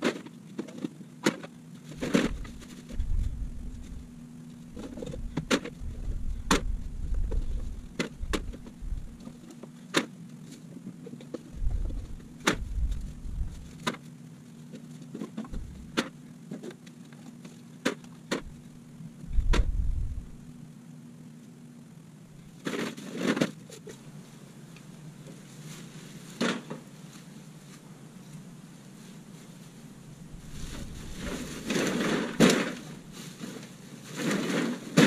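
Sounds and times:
low steady hum: 0:00.0 - 0:35.0
low rumbles: 0:02.0 - 0:09.4, 0:11.5 - 0:13.9, 0:15.5 - 0:16.0, 0:18.3 - 0:20.7, 0:30.2 - 0:31.7.

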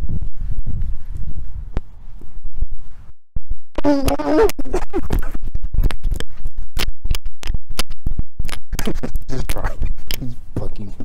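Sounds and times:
microphone rumbling and scratching: 0:00.0 - 0:11.0
sharp scratchy clicks: 0:03.8 - 0:10.3.

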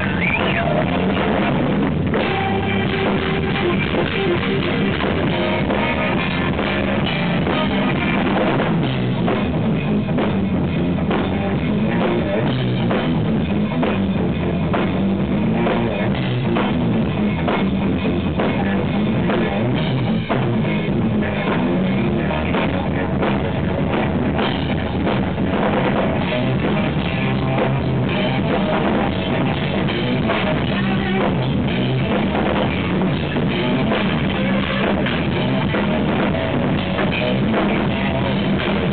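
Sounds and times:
drum kit: 0:00.0 - 0:38.9
electric bass: 0:00.0 - 0:38.9
electric guitar: 0:00.0 - 0:38.9.

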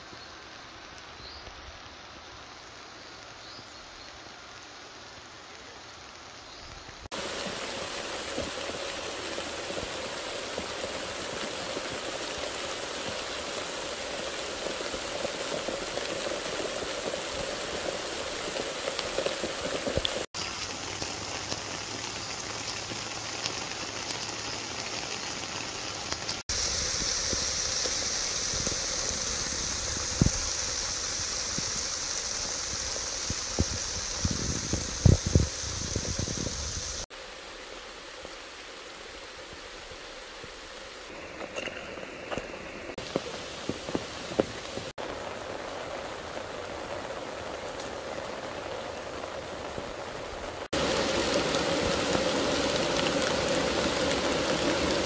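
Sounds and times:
steady rain: 0:00.0 - 0:55.0.

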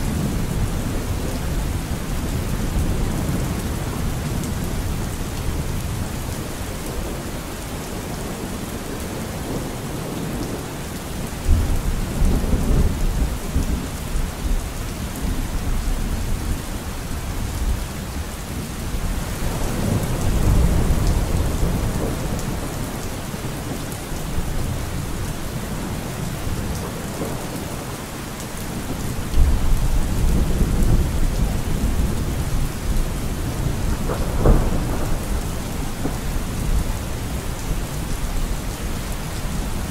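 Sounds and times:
steady rain: 0:00.0 - 0:39.9
rolling thunder: 0:29.3 - 0:38.2.

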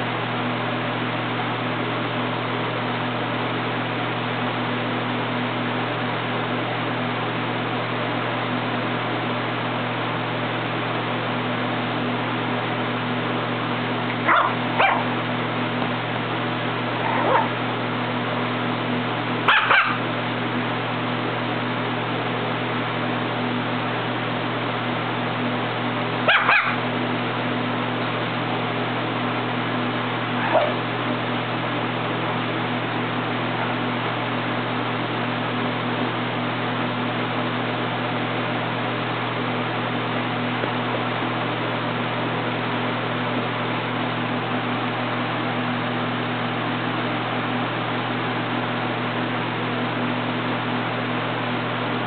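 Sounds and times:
steady background hum: 0:00.0 - 0:52.0
puppy yipping and barking: 0:14.2 - 0:15.1, 0:17.0 - 0:17.6, 0:19.5 - 0:20.0, 0:26.3 - 0:26.8, 0:30.4 - 0:30.8.

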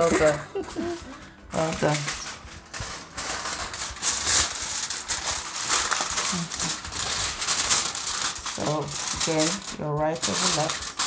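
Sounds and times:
kitchen foil crinkling: 0:00.0 - 0:11.0.

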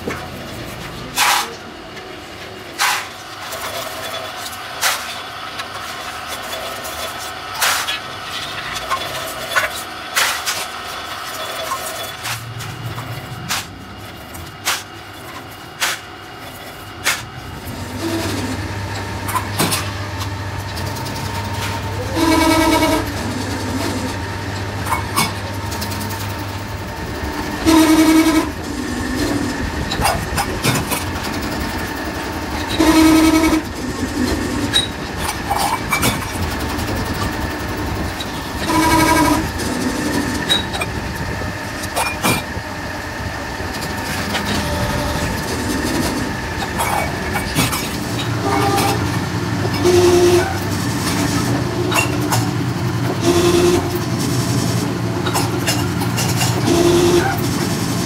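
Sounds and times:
low machine hum: 0:05.6 - 0:58.0
metal press squealing: 0:11.2 - 0:13.7, 0:17.1 - 0:42.7, 0:43.7 - 0:54.1, 0:54.8 - 0:57.8.

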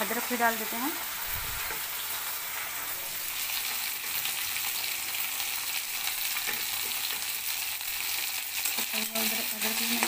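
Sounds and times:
vegetables sizzling in hot oil: 0:00.0 - 0:10.0.

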